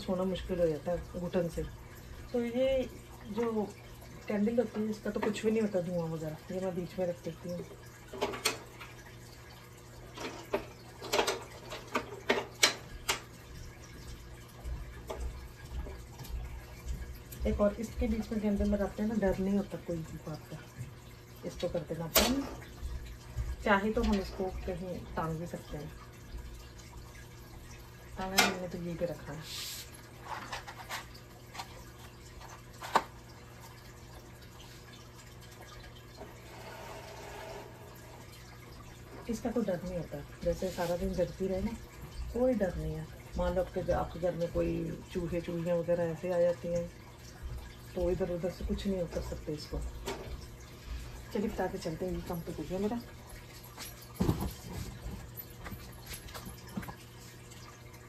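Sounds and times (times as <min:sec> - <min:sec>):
faint steady hum: 0:00.0 - 0:58.0.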